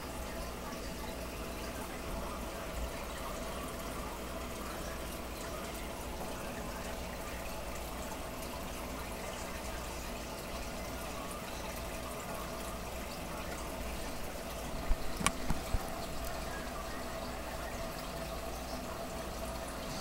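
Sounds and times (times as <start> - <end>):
faint steady hum: 0.0 - 20.0
fish tank water trickling: 0.0 - 20.0.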